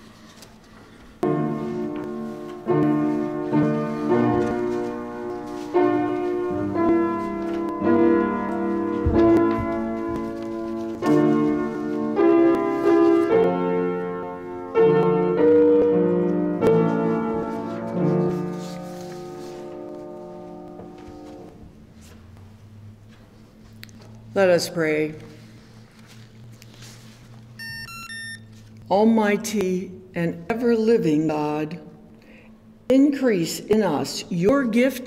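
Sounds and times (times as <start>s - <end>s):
piano playing slow chords: 1.2s - 21.9s.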